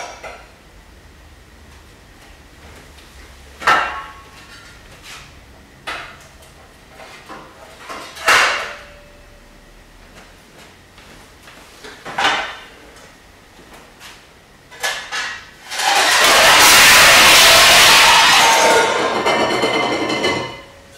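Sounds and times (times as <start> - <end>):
metal bowls clanking: 15.7 - 20.8.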